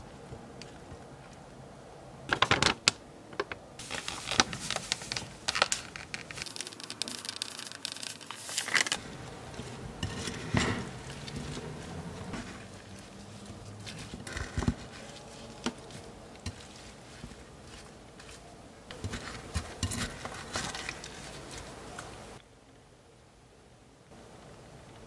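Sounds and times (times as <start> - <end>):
sugar pouring hiss: 3.8 - 10.5
wooden spatula scraping and tossing: 6.3 - 22.4.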